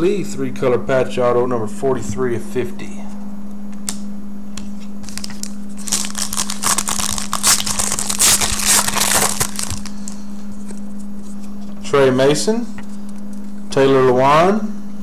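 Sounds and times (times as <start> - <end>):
steady low hum: 0.0 - 15.0
wrapper tearing and crinkling: 5.0 - 10.2.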